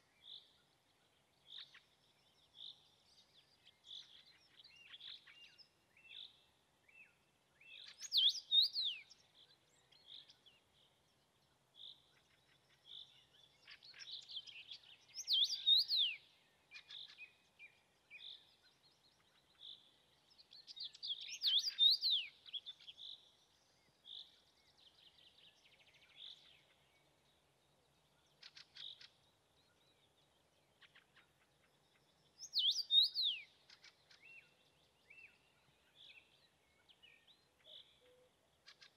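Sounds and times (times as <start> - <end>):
soft bird chirping: 0.0 - 38.9
bird singing whistled phrases: 15.2 - 16.2, 21.1 - 22.3, 32.4 - 33.5.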